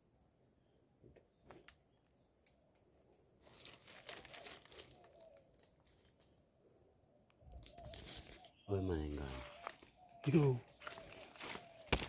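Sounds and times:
faint rustling and crackling: 3.4 - 6.5.

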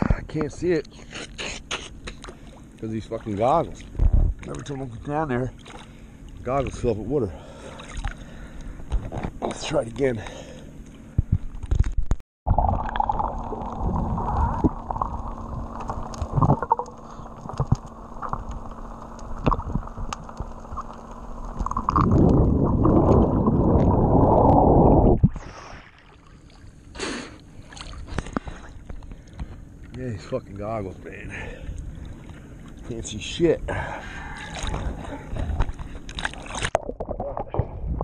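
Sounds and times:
light water splashes: 1.9 - 11.8, 25.4 - 37.7
muffled underwater rushing and bubbling: 12.5 - 26.9, 27.5 - 38.0.

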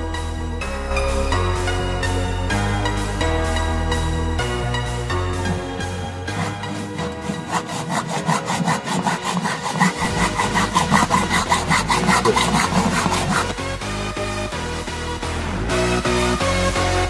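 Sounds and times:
hacksaw cutting metal: 5.4 - 13.8.

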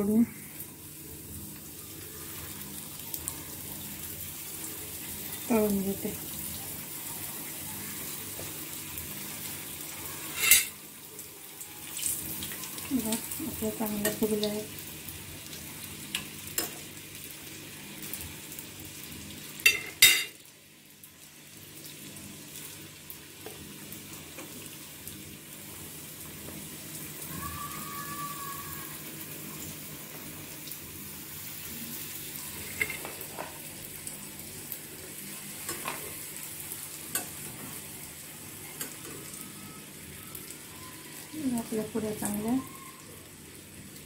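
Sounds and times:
dough deep-frying in hot oil: 0.0 - 44.0
metal utensil clinking on pan: 10.4 - 10.7, 19.6 - 20.4.

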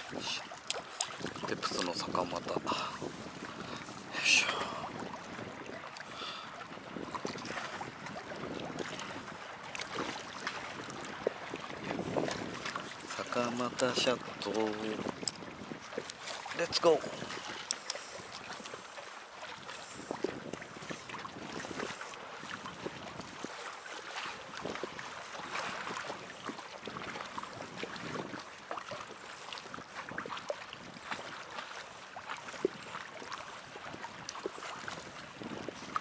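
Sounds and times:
small waves lapping on hull: 0.0 - 36.0
fishing tackle clicks and rustles: 15.1 - 15.4, 17.3 - 18.5.

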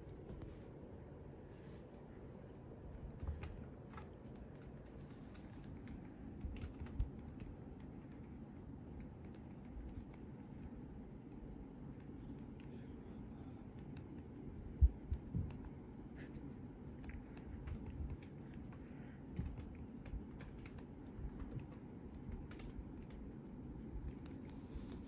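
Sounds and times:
kitten claw clicks: 2.3 - 12.7, 16.5 - 24.5.

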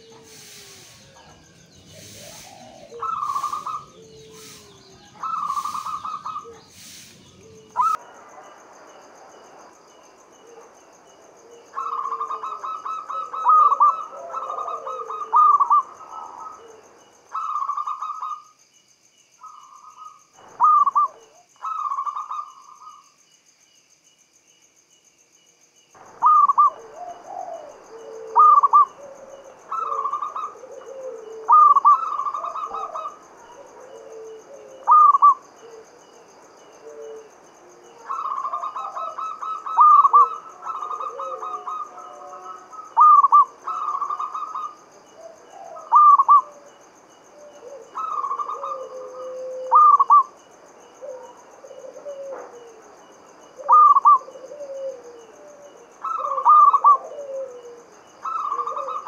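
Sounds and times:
dove cooing: 0.0 - 8.0, 11.4 - 18.4, 19.4 - 22.9, 26.2 - 46.7, 47.3 - 50.3, 51.0 - 52.9, 53.6 - 59.0.

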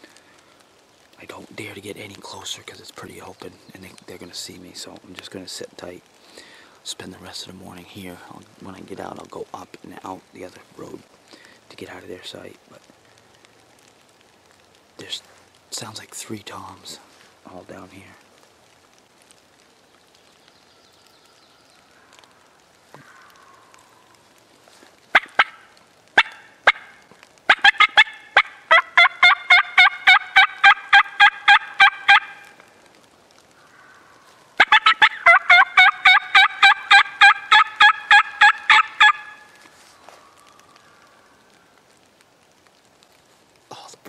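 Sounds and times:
turkey call hen yelps: 25.1 - 32.5, 34.6 - 39.5
turkey call clucks: 25.1 - 32.6, 34.6 - 39.6.

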